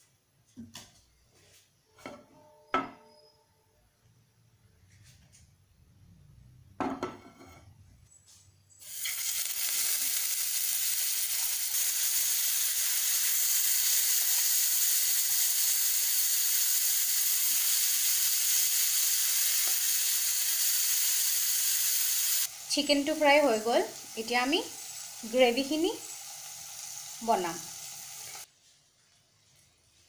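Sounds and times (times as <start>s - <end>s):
chicken frying in hot oil: 8.8s - 28.5s.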